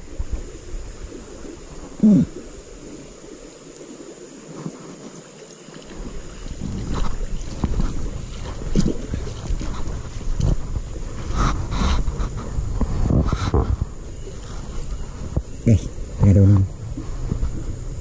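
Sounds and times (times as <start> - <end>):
wind rumbling on microphone: 0.0 - 3.5, 6.0 - 18.0
microphone handling noise: 6.6 - 15.6.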